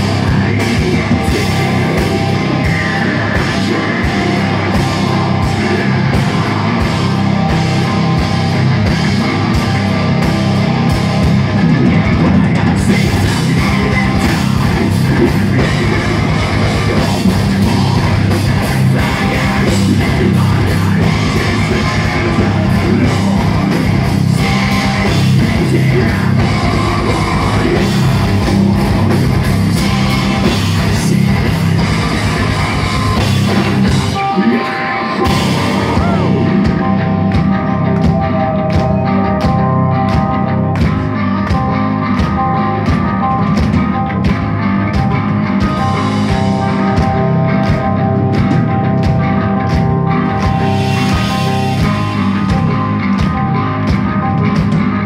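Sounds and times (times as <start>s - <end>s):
person singing: 0.0s - 7.6s, 12.1s - 39.6s
bass guitar: 0.0s - 55.0s
distorted electric guitars: 0.0s - 55.0s
drum kit: 0.0s - 55.0s.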